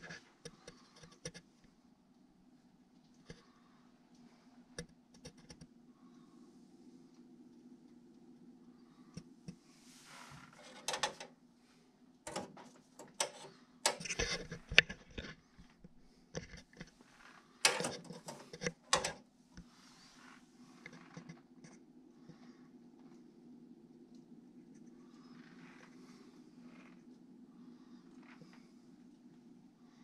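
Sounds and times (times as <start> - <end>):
steady low hum: 0.0 - 30.0
clicks and knocks: 10.6 - 11.3, 12.3 - 16.9, 17.6 - 19.2.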